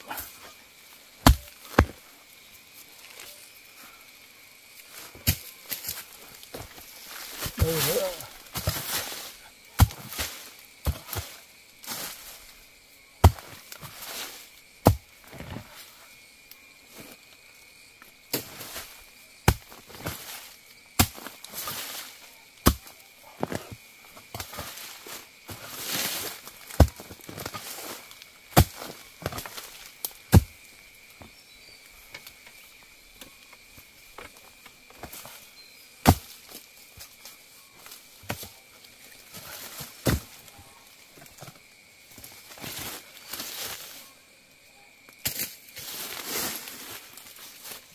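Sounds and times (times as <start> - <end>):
leaves and undergrowth rustling: 0.0 - 47.9
blade chopping bamboo: 1.2 - 1.9.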